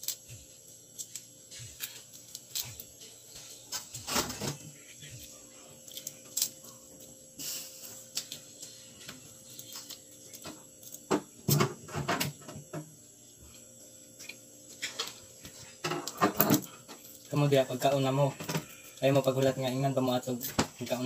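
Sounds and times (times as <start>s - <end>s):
crab shell crackling: 0.9s - 2.9s.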